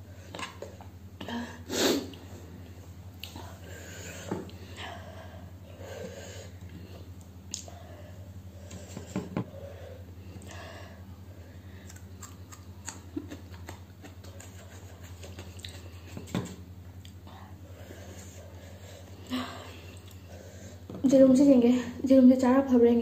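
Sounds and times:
steady low hum: 0.0 - 23.0
chewing and mouth noises: 11.8 - 16.3.

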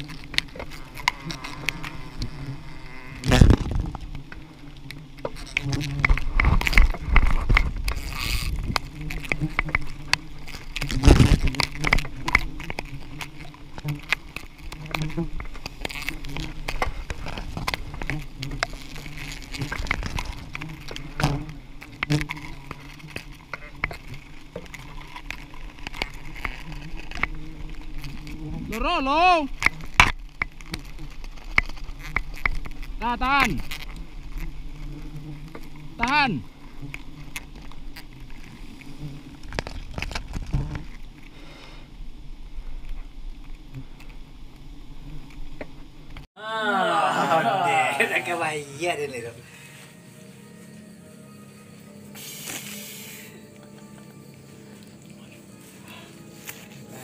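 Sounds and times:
knocks and crackles of branches: 0.0 - 41.3
bees buzzing: 0.0 - 41.8, 43.5 - 57.0.

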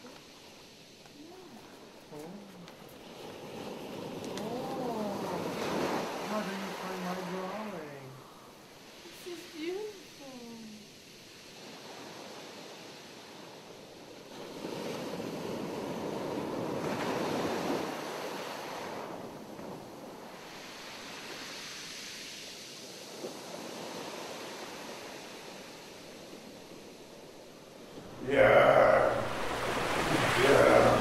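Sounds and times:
ocean waves rushing: 0.0 - 31.0.

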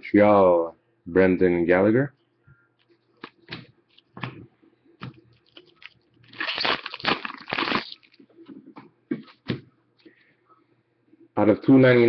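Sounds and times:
card pack wrapper crinkling: 5.3 - 8.2.

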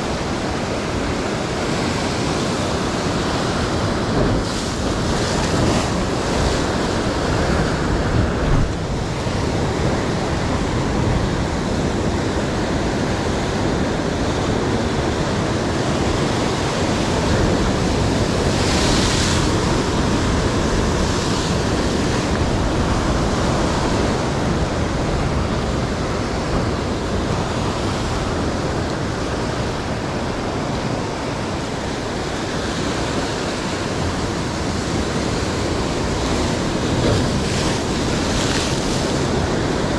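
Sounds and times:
surf breaking against rocks: 0.0 - 39.9.

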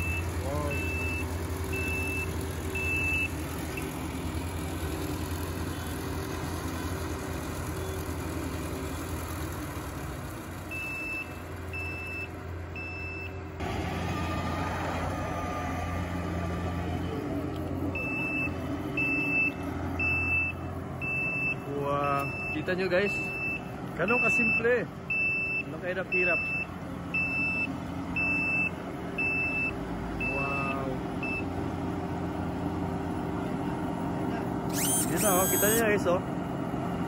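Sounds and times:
short warning beeps: 0.0 - 3.3, 18.0 - 31.4, 34.7 - 35.9
diesel engine running: 0.0 - 37.0.

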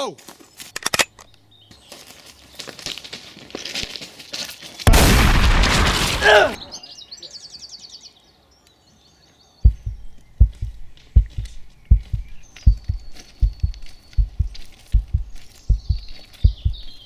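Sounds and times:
birds chirping: 0.5 - 3.0, 5.8 - 17.0
revolver gunshot: 4.9 - 6.3.

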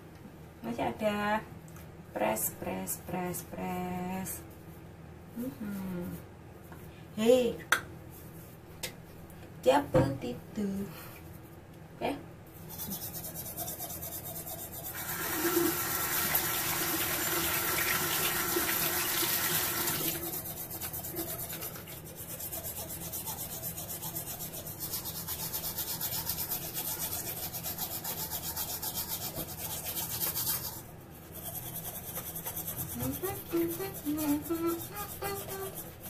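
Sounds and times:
toothbrush scrubbing teeth: 12.6 - 17.3, 19.5 - 36.0.

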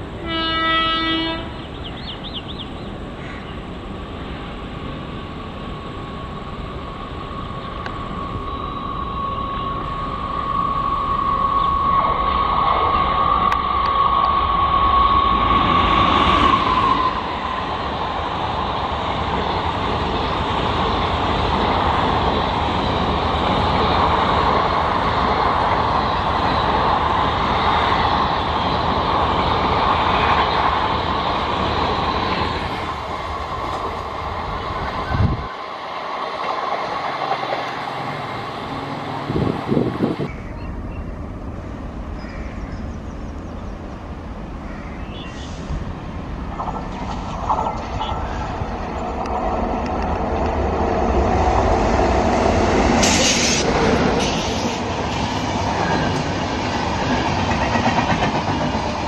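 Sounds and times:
train passing at speed: 0.0 - 59.0
train horn: 0.2 - 1.6.

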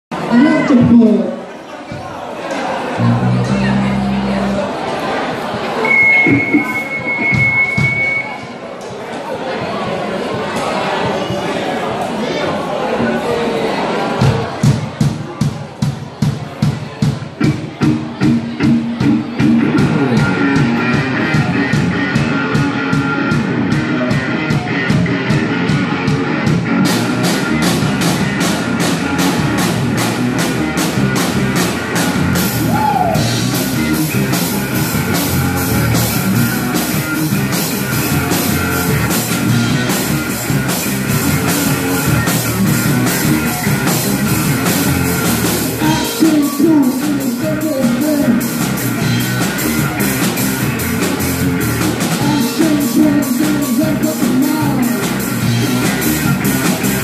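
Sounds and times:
electric guitars: 2.9 - 4.9, 5.8 - 8.5, 17.4 - 57.0
drum kit beat: 5.4 - 8.5, 14.2 - 57.0.

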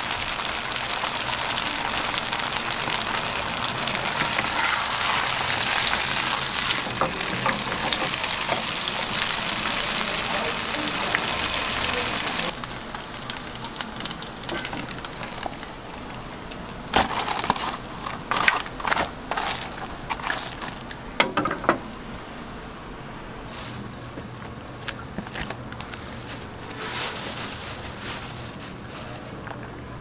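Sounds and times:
dumplings sizzling in oil: 0.0 - 21.2.

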